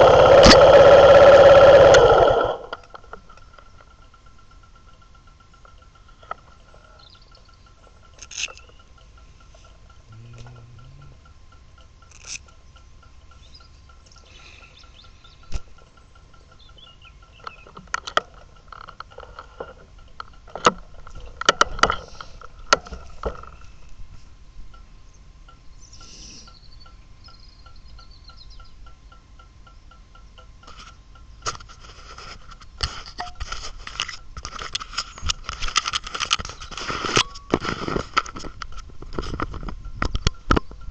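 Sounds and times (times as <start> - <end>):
soft even ticking: 0.0 - 31.5
faint birdsong: 3.4 - 18.8, 24.7 - 30.6.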